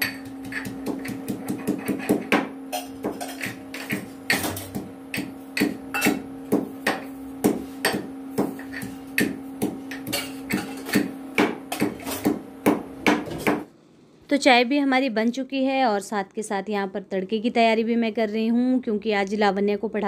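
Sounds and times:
knocks of food preparation: 0.0 - 13.7.

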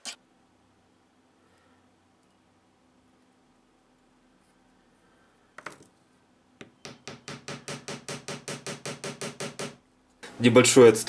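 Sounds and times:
small hammer tapping: 6.6 - 9.8.

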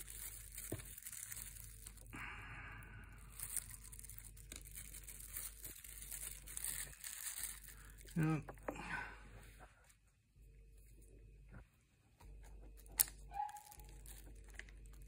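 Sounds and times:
plastic packaging crinkling: 0.0 - 2.3, 3.1 - 8.6, 12.8 - 15.0.

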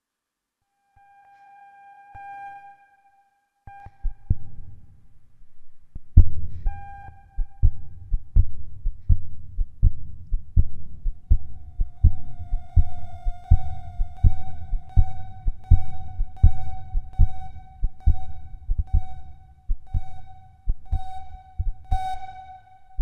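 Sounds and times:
low heartbeat-like thumping: 4.0 - 4.9, 5.8 - 22.4
held beep-like tone: 11.6 - 23.0.

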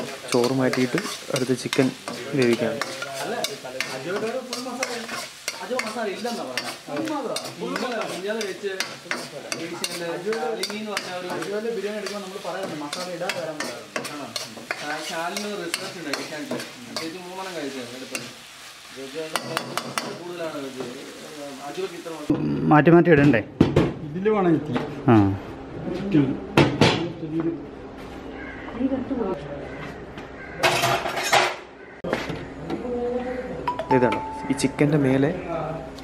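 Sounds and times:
spatula clacking against pan: 0.0 - 17.2
spatula scraping wok: 0.0 - 22.1, 30.7 - 31.6.

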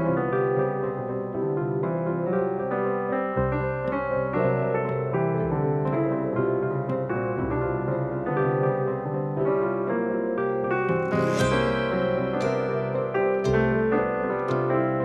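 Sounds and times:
bass line: 10.9 - 15.0
keyboard tune: 11.0 - 15.0.

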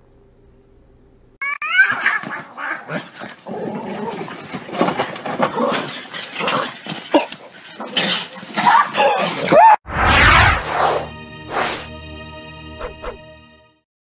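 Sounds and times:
cats screeching: 1.4 - 3.0
cats yowling: 1.4 - 3.1.

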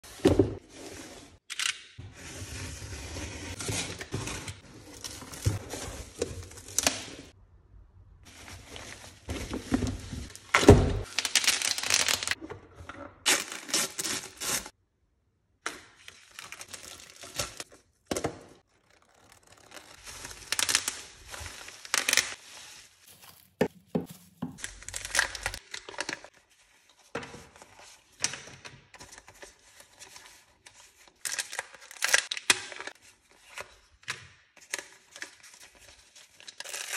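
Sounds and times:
paper tearing and crinkling: 11.0 - 12.4, 13.3 - 14.7, 16.3 - 17.7, 18.6 - 25.7.

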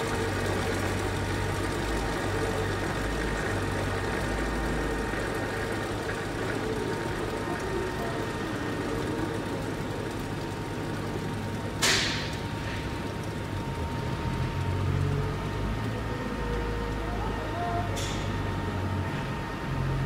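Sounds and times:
grinder motor humming: 0.0 - 19.0.

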